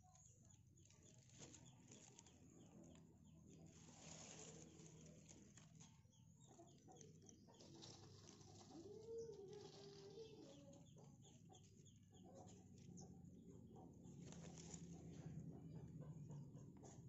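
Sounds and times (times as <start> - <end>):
faint rooster crowing: 6.6 - 17.0.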